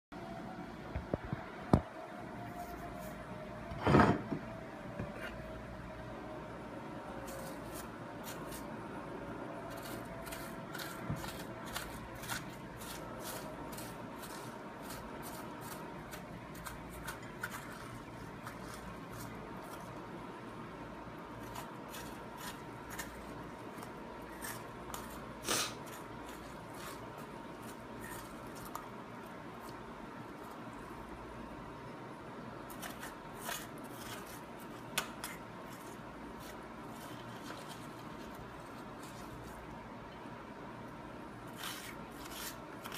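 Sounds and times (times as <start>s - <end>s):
fork scraping squash flesh: 7.3s - 8.7s, 9.7s - 20.0s, 21.4s - 28.9s, 32.7s - 39.6s, 41.5s - 42.9s.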